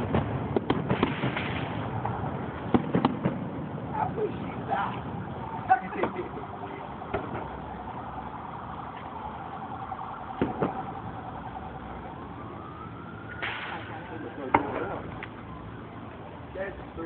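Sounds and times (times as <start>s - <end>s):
fireworks popping: 0.0s - 3.7s
siren wailing: 3.8s - 17.0s.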